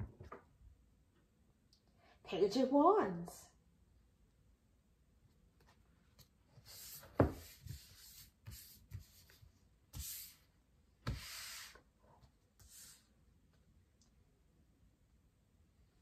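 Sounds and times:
cards sliding across a desk: 6.6s - 11.9s, 12.6s - 13.2s.

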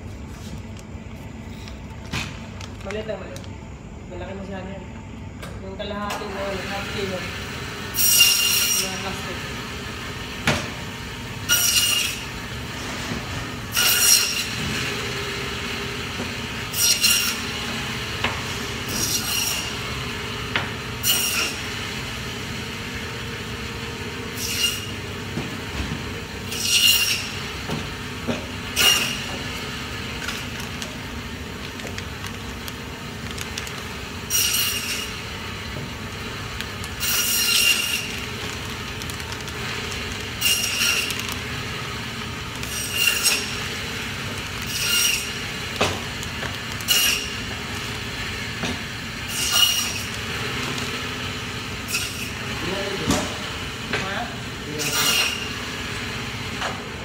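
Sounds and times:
band saw running: 6.3s - 12.5s, 13.6s - 57.0s
saw blade screeching through bone: 24.4s - 24.9s, 26.5s - 27.4s, 34.3s - 35.2s, 37.0s - 38.2s, 40.4s - 41.2s, 42.6s - 43.6s, 44.6s - 45.4s, 46.9s - 47.4s, 49.3s - 50.2s, 51.9s - 52.4s.

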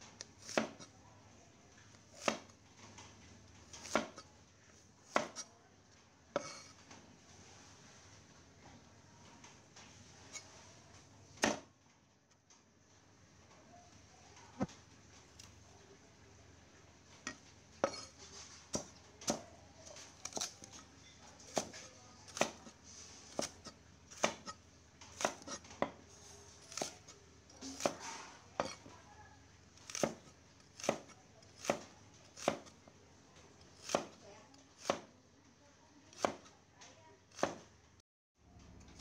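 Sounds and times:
cleaver chopping on wooden block: 0.4s - 0.8s, 3.8s - 4.2s, 5.1s - 5.4s, 23.4s - 24.6s, 25.2s - 26.0s, 26.7s - 27.1s, 27.7s - 28.0s, 29.9s - 32.7s, 33.8s - 34.2s, 34.8s - 35.1s, 36.2s - 36.5s, 37.4s - 37.6s.

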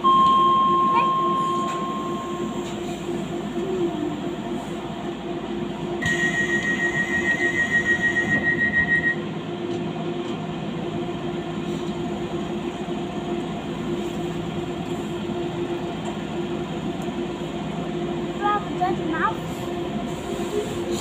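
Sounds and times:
steady high tone: 0.0s - 2.8s
train electric hum: 0.0s - 21.0s
wheels rumbling on track: 0.0s - 21.0s.

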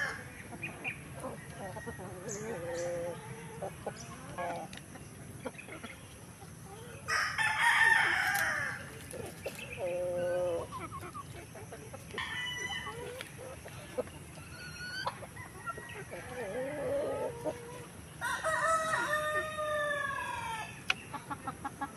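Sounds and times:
chickens clucking: 0.0s - 21.9s
rooster crowing: 7.1s - 8.8s, 18.2s - 20.7s.

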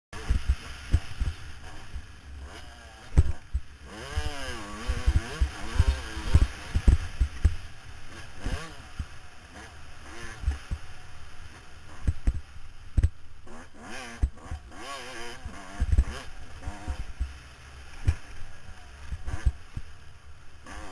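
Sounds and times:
dirt bike engine revving: 0.2s - 20.9s
wind buffeting on microphone: 3.1s - 7.6s.

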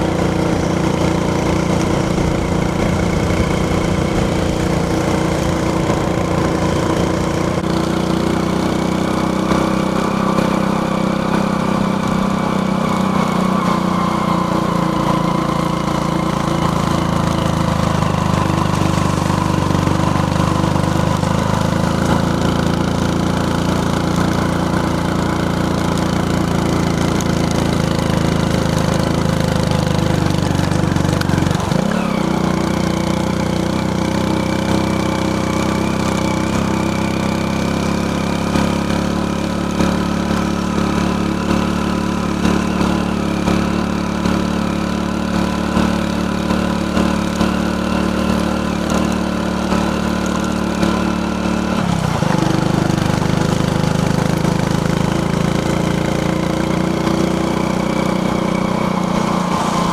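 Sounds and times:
engine-like mechanical drone: 0.0s - 59.9s.

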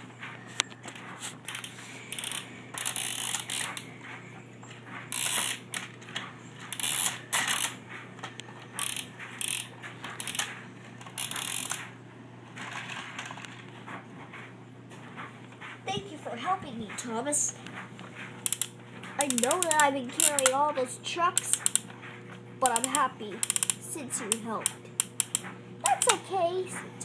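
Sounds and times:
steady low hum: 0.0s - 27.0s
plastic toy clicking and rattling: 0.9s - 3.8s, 5.1s - 11.9s, 12.5s - 13.7s, 18.4s - 20.6s, 21.3s - 21.9s, 22.6s - 26.2s.

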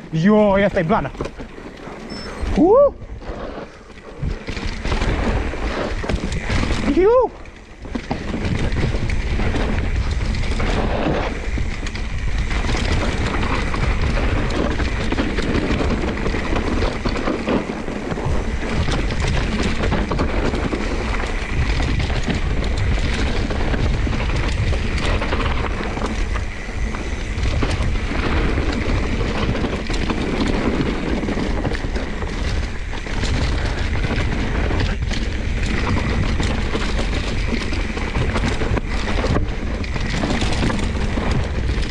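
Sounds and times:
bike knocking and rattling: 0.0s - 41.9s
wind buffeting microphone: 0.0s - 41.9s.

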